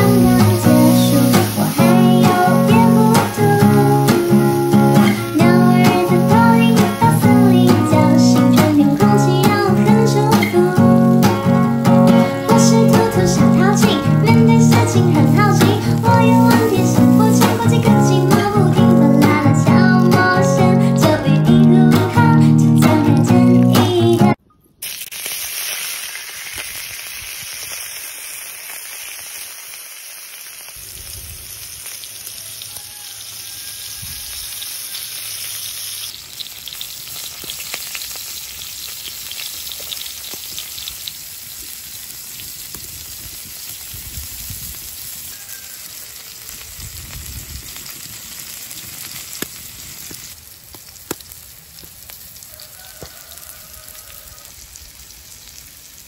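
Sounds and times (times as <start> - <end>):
octopus sizzling in oil: 0.0 - 19.0, 24.8 - 56.0
small pops and crackles: 24.8 - 32.3, 36.0 - 41.8, 46.0 - 53.2.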